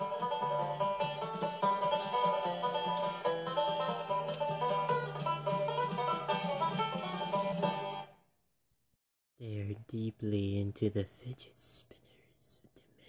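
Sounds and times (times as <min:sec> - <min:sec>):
fast picked banjo: 0:00.0 - 0:08.0.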